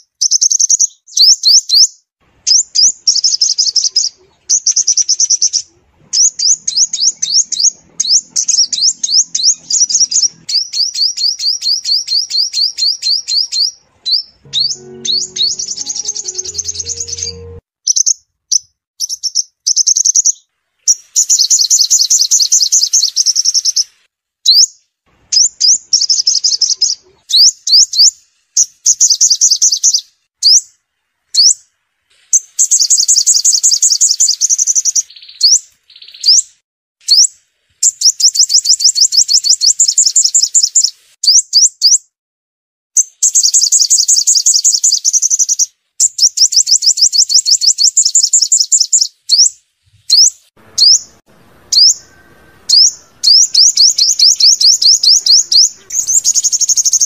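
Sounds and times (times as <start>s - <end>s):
high-pitched bird trills: 2.5s - 18.2s, 50.1s - 57.0s
upward-sweeping bird notes: 14.1s - 17.6s, 50.6s - 57.0s.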